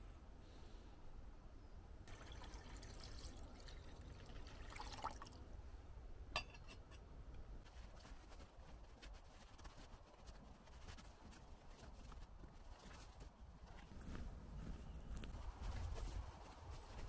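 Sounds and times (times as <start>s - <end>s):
water pouring into metal pot: 2.1s - 5.4s
metallic clink of pot: 6.4s - 6.8s.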